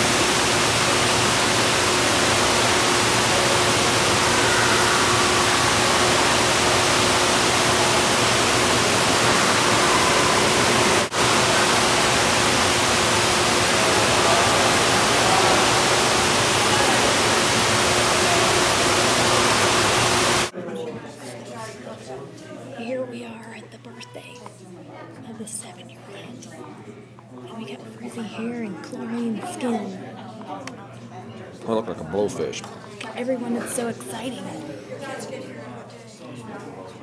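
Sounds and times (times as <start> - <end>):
fountain water rushing: 0.0 - 20.5.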